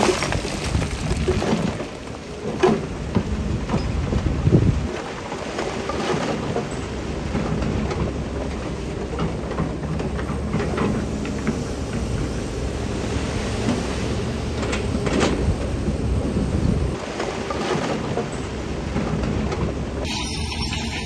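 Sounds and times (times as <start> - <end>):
diesel engine rumbling: 6.4 - 17.0.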